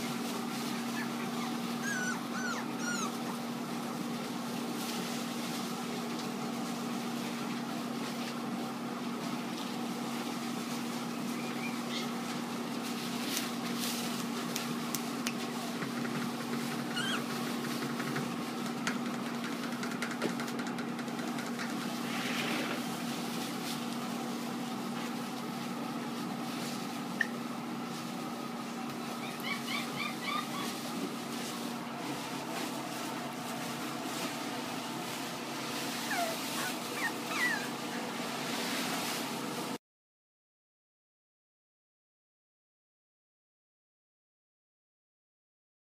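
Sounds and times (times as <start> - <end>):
rustling in paper bedding: 0.0 - 18.8, 22.8 - 29.2, 30.3 - 39.8
steady machine hum: 0.0 - 39.8
puppies squeaking: 0.6 - 3.6, 11.3 - 12.2, 16.8 - 17.4, 29.0 - 30.9, 36.0 - 38.0.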